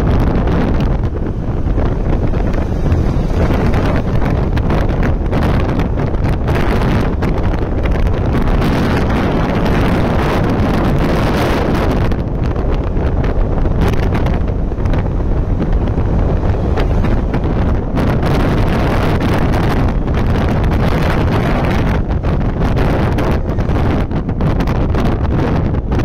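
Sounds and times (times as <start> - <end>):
motorcycle engine: 0.0 - 26.0
road noise: 0.0 - 26.0
wind buffeting microphone: 0.0 - 26.0.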